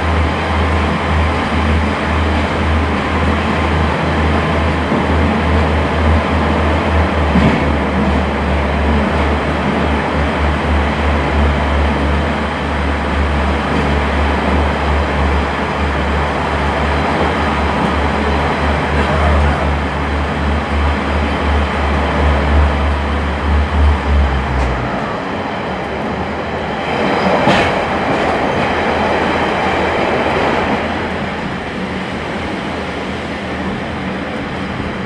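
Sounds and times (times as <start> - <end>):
diesel engine drone: 0.0 - 27.0.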